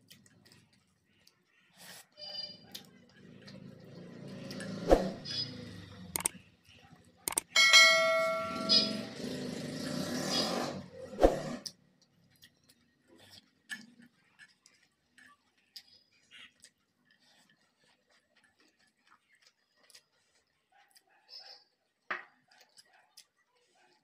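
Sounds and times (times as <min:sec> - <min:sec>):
sharp click: 0:07.3 - 0:07.5.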